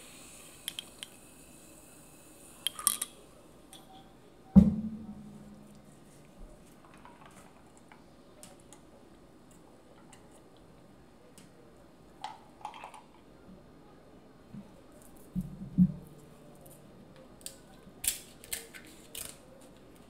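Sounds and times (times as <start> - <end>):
low thud: 4.6 - 5.8
crackly clicks of crab leg: 16.6 - 20.0.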